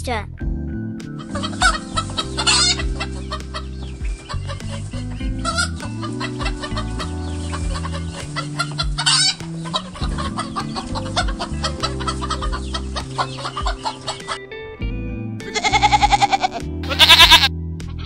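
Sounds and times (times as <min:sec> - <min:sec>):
chicken squawk: 0:01.2 - 0:14.4
chickens clucking: 0:01.2 - 0:14.4.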